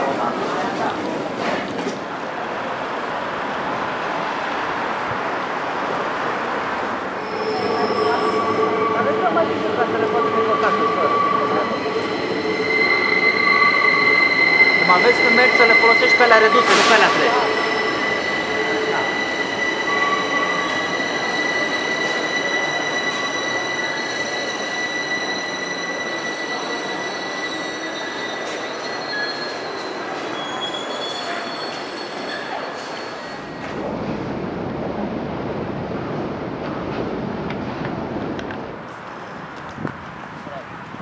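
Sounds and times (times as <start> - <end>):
train rumbling on rails: 0.0 - 41.0
high-pitched metal squeal: 7.2 - 33.6.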